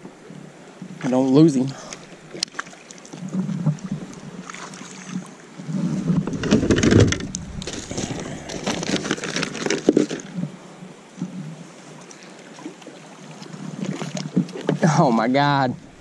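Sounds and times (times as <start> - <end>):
bumps against kayak hull: 5.9 - 10.5
gear being rummaged: 6.2 - 10.3
plastic bag crinkling: 6.3 - 10.2.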